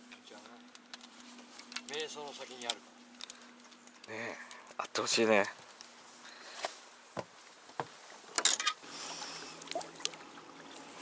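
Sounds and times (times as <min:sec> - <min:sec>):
fishing gear clicking: 0:00.1 - 0:06.0, 0:08.3 - 0:08.8.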